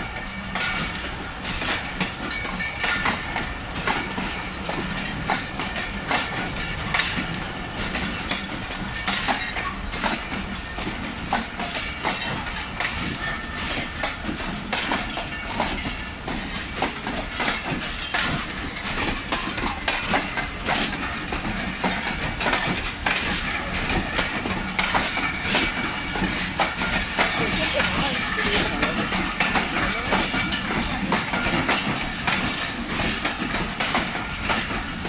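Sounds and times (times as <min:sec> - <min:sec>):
train rumble: 0:00.0 - 0:35.0
train wheels clattering: 0:00.0 - 0:35.0.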